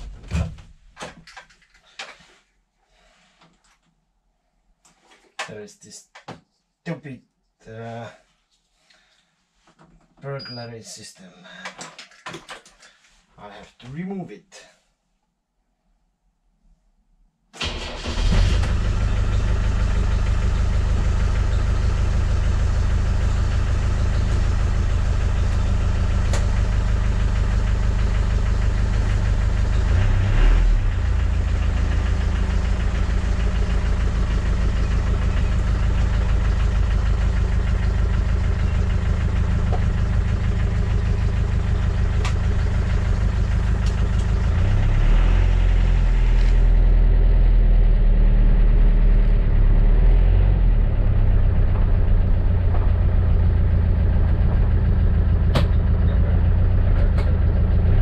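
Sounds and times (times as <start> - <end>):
car engine idling: 17.6 - 30.2, 30.8 - 47.8, 50.8 - 58.0.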